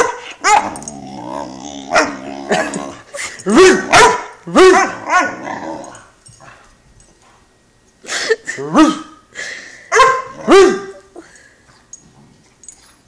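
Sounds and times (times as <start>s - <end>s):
puppy grumbling: 0.6s - 3.1s, 4.5s - 6.1s
puppy barking sharply: 3.6s - 5.3s, 9.9s - 10.9s.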